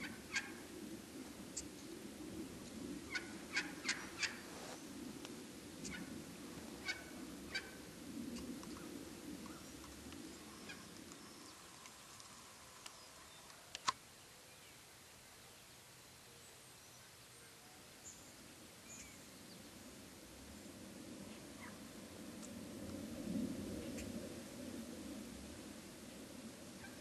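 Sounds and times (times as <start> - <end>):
wild turkeys gobbling: 0.0 - 0.7, 3.0 - 4.8, 6.8 - 7.8, 10.5 - 11.0
faint steady background noise: 0.0 - 27.0.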